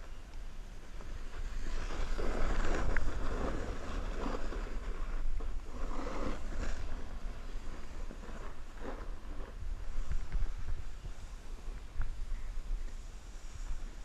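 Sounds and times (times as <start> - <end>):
wind rumble on microphone: 0.0 - 14.0
snowboard scraping on snow: 0.7 - 14.0.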